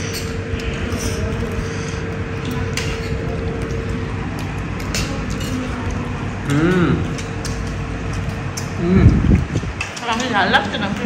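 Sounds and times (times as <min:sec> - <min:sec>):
low mechanical rumble: 0:00.0 - 0:11.0
steady hum: 0:00.0 - 0:11.0.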